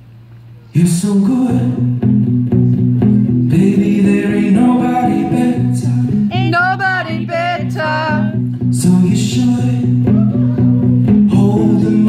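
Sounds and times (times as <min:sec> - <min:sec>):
acoustic guitar: 0:00.4 - 0:12.0
low bass line: 0:01.3 - 0:12.0
person singing: 0:03.6 - 0:12.0.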